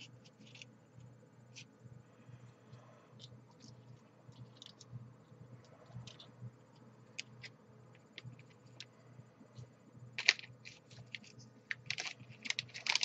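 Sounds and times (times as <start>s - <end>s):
faint low hum: 0.0s - 13.0s
plastic packet crinkling: 10.2s - 13.0s.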